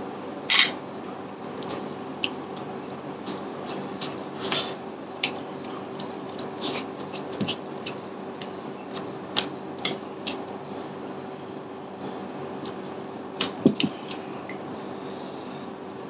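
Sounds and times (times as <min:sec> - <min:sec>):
steady low hum: 0:00.0 - 0:16.0
wet eating clicks and smacks: 0:05.2 - 0:10.6, 0:13.4 - 0:14.2.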